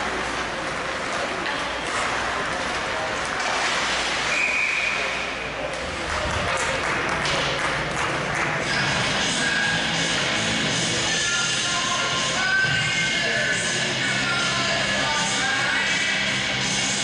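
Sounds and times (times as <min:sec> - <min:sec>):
sticks and puck clacking: 0:00.0 - 0:10.2
skating noise: 0:00.0 - 0:15.4
crowd chatter: 0:00.0 - 0:17.0
referee whistle blast: 0:04.3 - 0:05.2.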